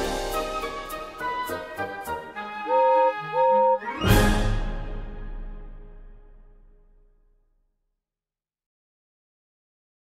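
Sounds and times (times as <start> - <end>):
orchestral theme music: 0.0 - 7.1.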